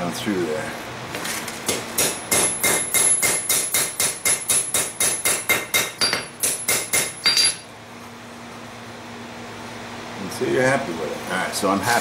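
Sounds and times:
hammer striking metal on anvil: 2.0s - 7.7s.

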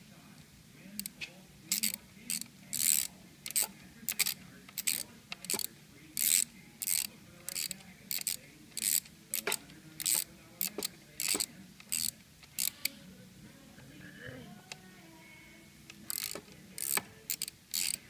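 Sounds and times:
socket ratchet clicking: 1.7s - 12.7s, 16.0s - 18.0s.

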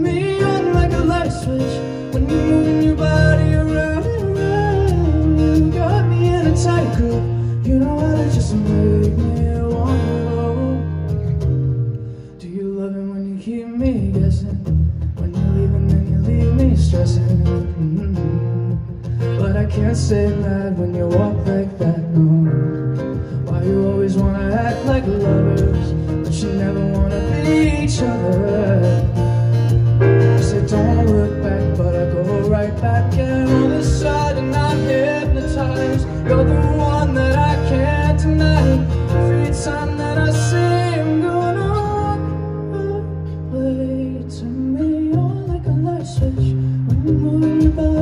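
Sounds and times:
man singing: 0.0s - 11.3s, 12.4s - 48.0s
acoustic guitar: 0.0s - 48.0s
keyboard piano chords: 17.8s - 48.0s.

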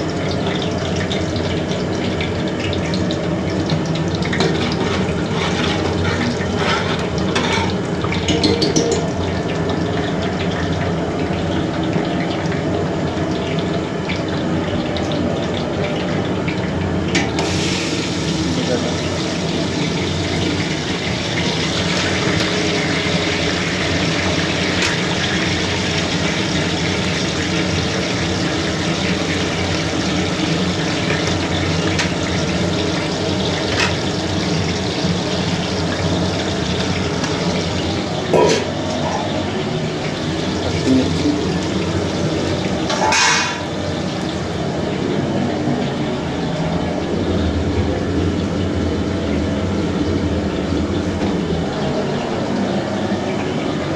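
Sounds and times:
onions sizzling in hot oil: 0.0s - 53.9s
knocks against pot: 8.2s - 9.1s.

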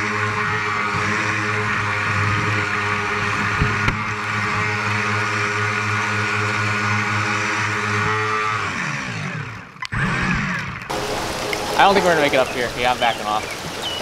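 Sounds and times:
electric motor and propeller whining: 0.0s - 14.0s
water rushing past: 10.9s - 14.0s.

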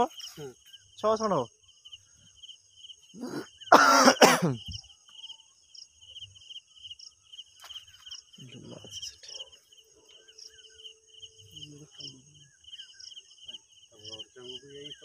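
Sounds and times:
insects chirping: 0.0s - 15.0s
person coughing harshly: 3.2s - 4.7s.

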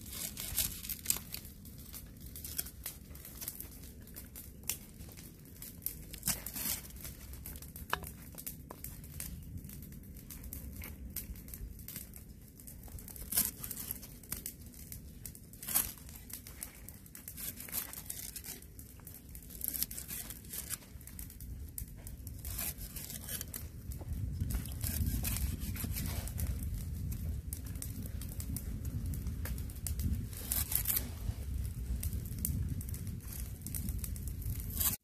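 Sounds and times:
knife slicing stalks on wood: 6.2s - 7.0s, 19.6s - 20.8s, 22.4s - 23.6s, 24.5s - 26.4s, 30.3s - 31.1s.

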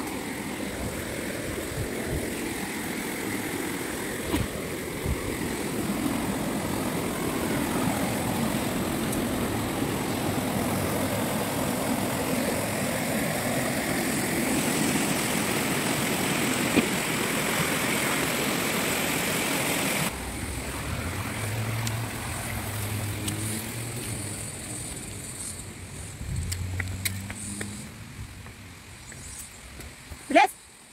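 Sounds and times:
stream water rushing: 0.0s - 26.0s.

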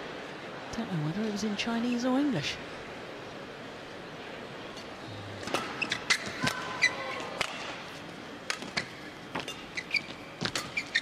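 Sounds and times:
shoes squeaking on court: 5.4s - 7.4s, 8.6s - 11.0s.

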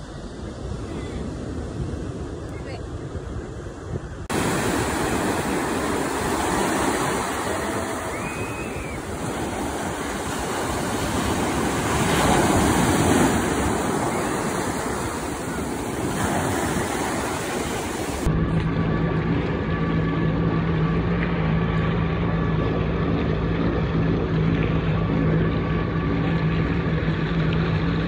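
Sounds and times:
ocean surf breaking on shore: 0.0s - 18.3s.

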